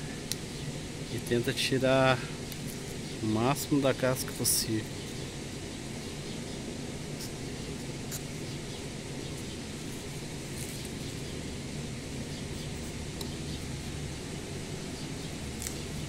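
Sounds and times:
steady background hum: 0.0s - 16.0s
knife scraping bark: 8.0s - 8.4s.

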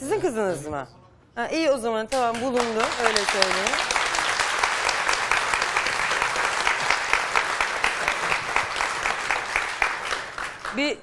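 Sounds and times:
audience applauding: 2.3s - 10.9s.

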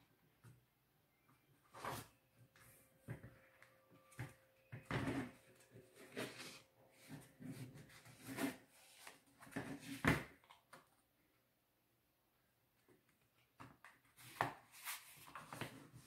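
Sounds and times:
paper rustling and rubbing: 14.2s - 16.0s.

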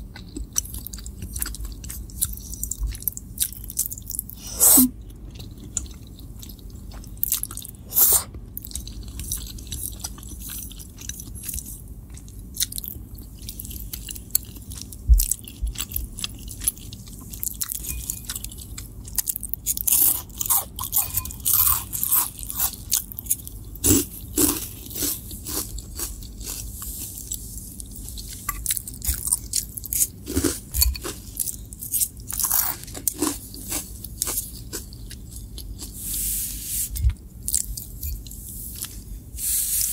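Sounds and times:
chewing pasta: 0.0s - 36.3s, 37.0s - 39.2s
crunching puffed snacks: 5.0s - 36.0s.

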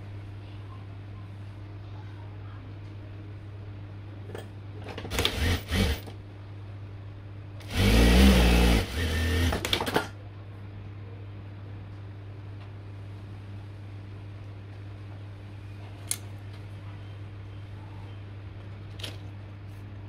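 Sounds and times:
sewing machine stitching: 5.0s - 6.1s, 7.6s - 10.1s
motor hum: 5.1s - 6.2s, 7.6s - 9.9s.

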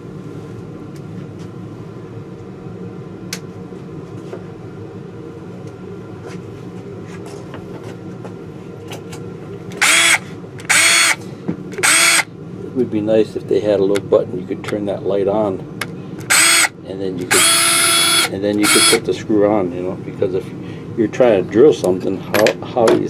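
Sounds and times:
steady low hum: 0.0s - 23.0s
cordless drill whine: 9.8s - 11.2s, 11.8s - 12.3s, 16.3s - 19.1s.

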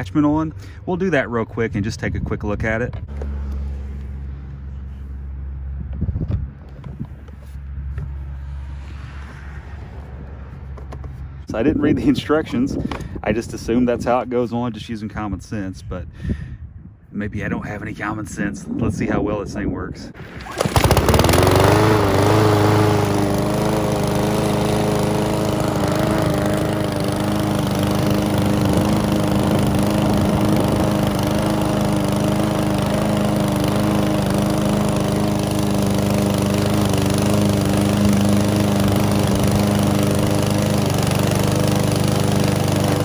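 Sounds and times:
lawn mower engine cutting grass: 20.2s - 43.0s.

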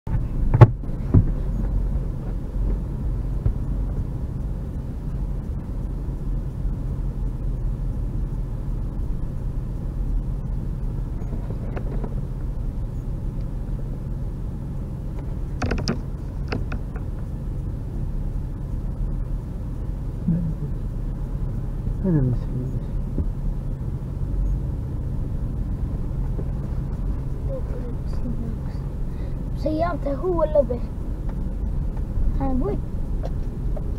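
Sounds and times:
sharp knocks and creaks: 0.1s - 2.8s, 11.1s - 12.5s, 15.1s - 17.3s
car driving on rough unpaved track: 0.1s - 33.9s.

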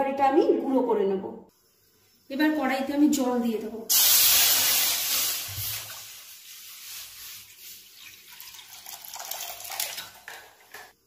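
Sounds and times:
water hissing on hot metal: 3.9s - 8.9s
water pouring and splashing: 3.9s - 11.0s.

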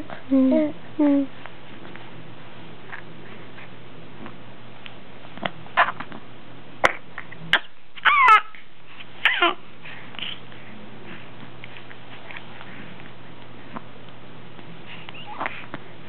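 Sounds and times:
baby babbling and squealing: 8.0s - 8.6s.

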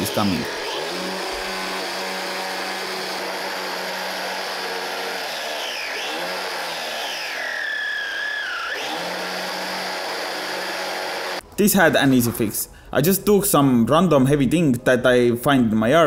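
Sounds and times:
electric motor whine: 0.0s - 11.4s.

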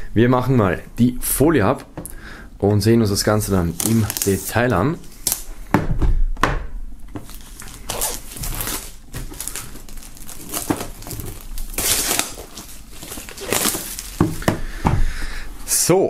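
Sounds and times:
plastic film crinkling and tearing: 3.5s - 5.5s, 7.2s - 14.4s.

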